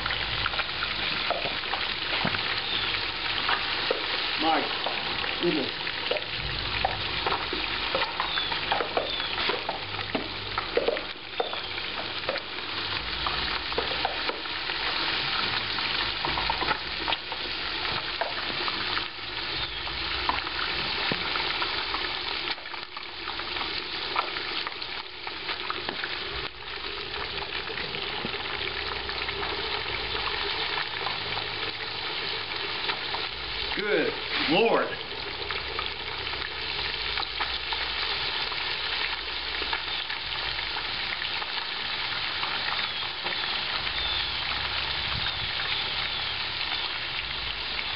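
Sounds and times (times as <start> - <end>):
oil sizzling and bubbling: 0.0 - 47.9
low rumble: 6.3 - 7.6.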